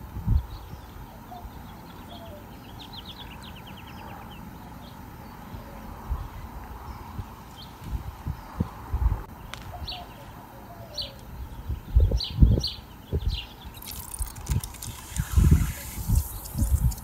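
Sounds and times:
bird singing rapid trill: 12.2 - 17.0
faint steady hum: 13.6 - 17.0.

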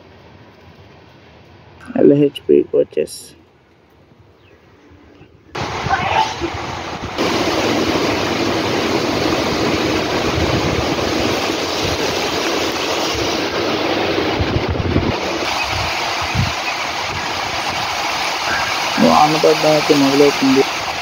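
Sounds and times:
low uneven rumble: 0.0 - 21.0
heavy rain falling: 5.6 - 21.0.

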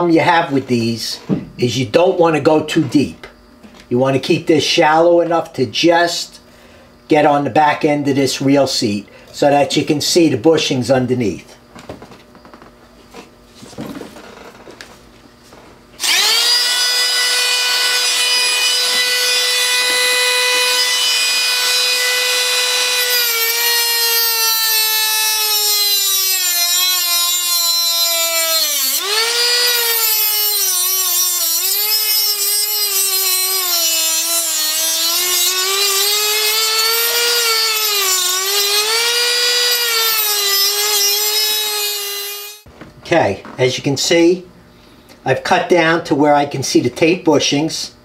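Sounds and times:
rotary tool whining: 16.0 - 42.7.

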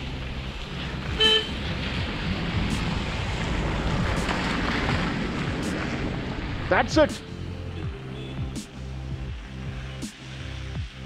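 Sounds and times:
steady low rumble: 0.0 - 11.0
vehicle horn toot: 1.2 - 1.6, 7.8 - 8.6.

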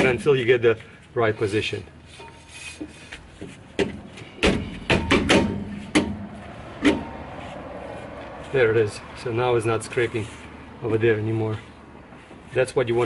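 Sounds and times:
brake drum metallic knocks: 3.8 - 7.1.

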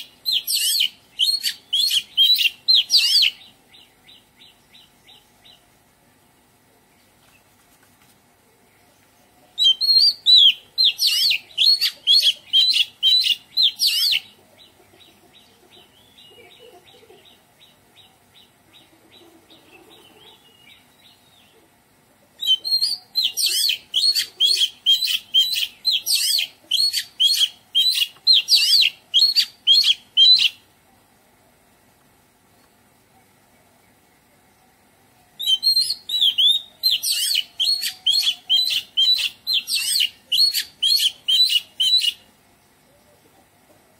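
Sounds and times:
bird singing repeated notes: 0.0 - 5.6, 9.5 - 21.6, 22.4 - 30.7, 35.2 - 43.1.

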